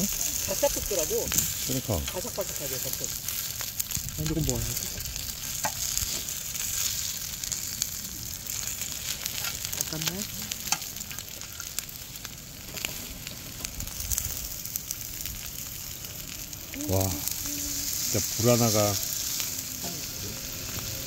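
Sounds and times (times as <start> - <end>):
meat sizzling on a griddle pan: 0.0 - 21.0
metal tongs clicking on a pan: 9.3 - 11.7.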